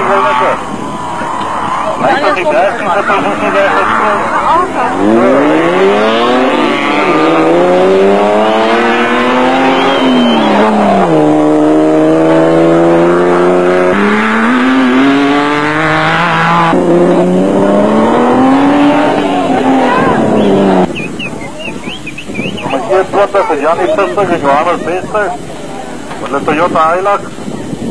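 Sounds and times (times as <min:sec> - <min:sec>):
race engines accelerating hard: 0:00.0 - 0:21.2.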